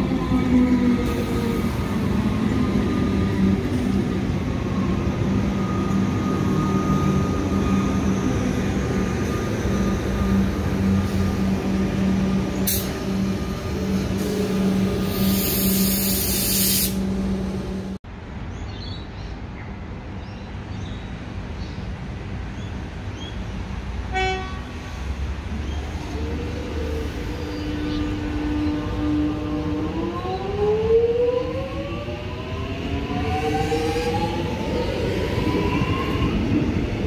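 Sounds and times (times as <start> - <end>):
electric train humming: 0.0 - 18.0, 25.8 - 37.0
hiss of air: 12.6 - 13.0, 14.2 - 17.1.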